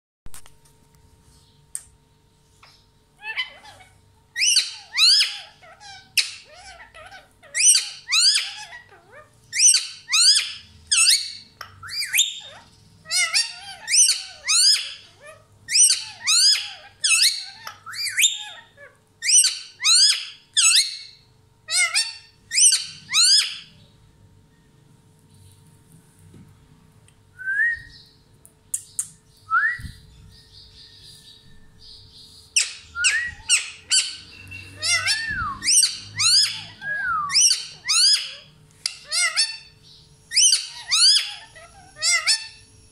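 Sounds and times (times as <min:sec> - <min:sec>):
parakeet screeching calls: 0:03.2 - 0:23.8, 0:32.5 - 0:42.9.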